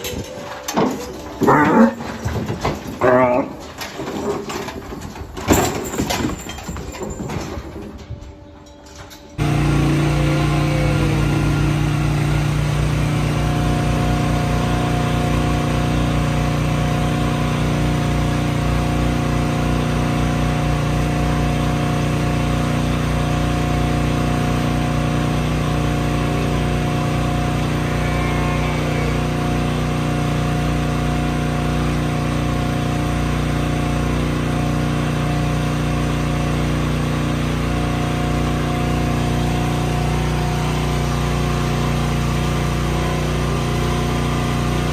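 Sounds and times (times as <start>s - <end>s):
feed cart motor humming: 9.2s - 44.9s.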